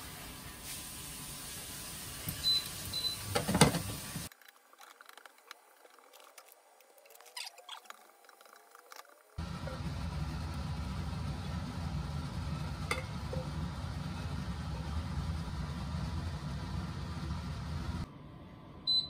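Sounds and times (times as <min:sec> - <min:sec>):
vegetables frying hiss: 0:00.0 - 0:04.3.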